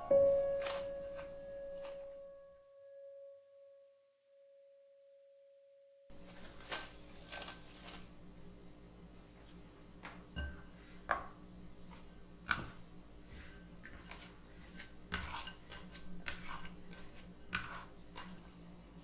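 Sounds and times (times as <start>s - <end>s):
dough scraper scraping glass bowl: 13.3s - 18.5s.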